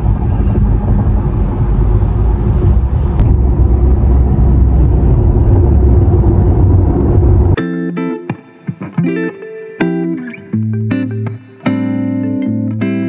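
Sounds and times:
car cabin road and engine rumble: 0:00.0 - 0:07.6.

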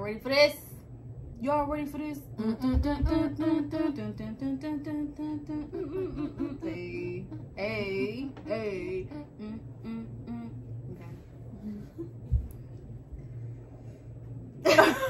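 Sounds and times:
women singing and humming: 0:01.9 - 0:12.5.

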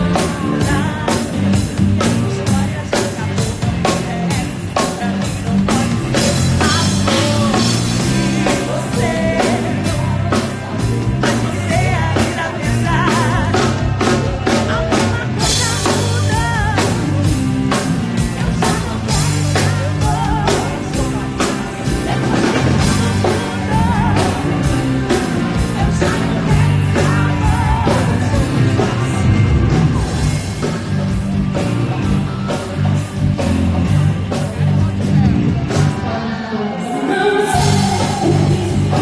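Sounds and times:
drum kit beat: 0:00.0 - 0:36.1, 0:37.2 - 0:39.0
person singing: 0:00.0 - 0:39.0
pop-rock band playing: 0:00.0 - 0:39.0.

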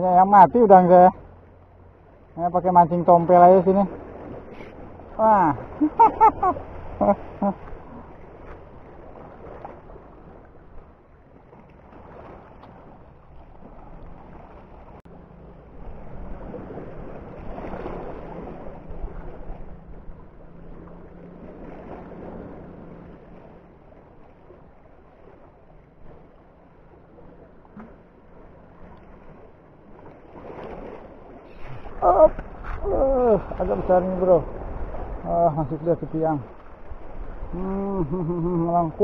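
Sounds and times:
sea water against rocks: 0:00.0 - 0:39.0
wind buffeting microphone: 0:30.4 - 0:37.8.

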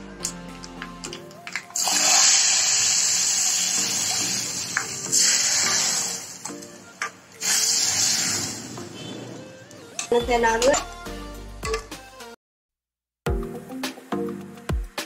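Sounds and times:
hot oil sizzling on dal: 0:01.5 - 0:08.8.

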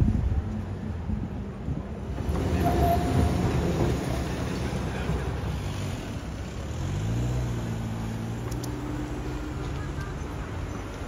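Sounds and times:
tram rumbling past on rails: 0:00.0 - 0:11.0.

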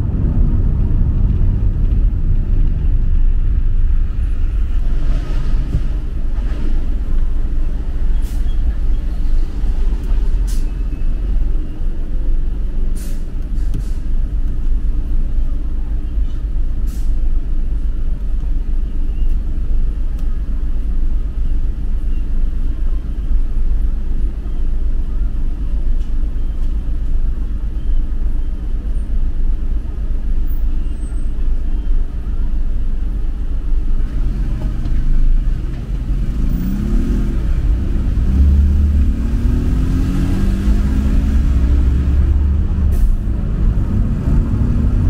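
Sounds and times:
street traffic rumble: 0:00.0 - 0:45.0
engine passing close by: 0:34.1 - 0:45.0.

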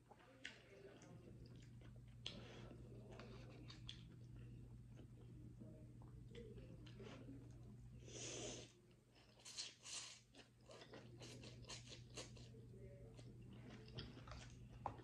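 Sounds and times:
wet chewing: 0:13.2 - 0:15.0.

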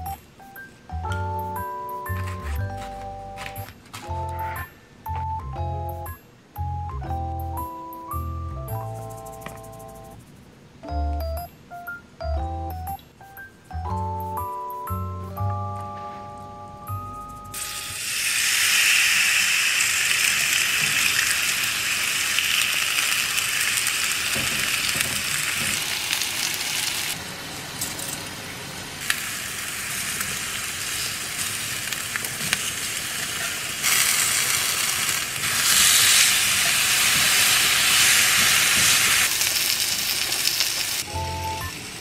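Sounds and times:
food sizzling on grill pan: 0:17.6 - 0:27.2, 0:29.0 - 0:42.0.

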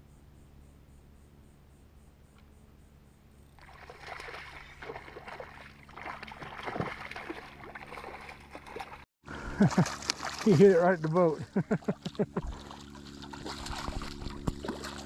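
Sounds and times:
fish splashing at surface: 0:03.6 - 0:15.0.

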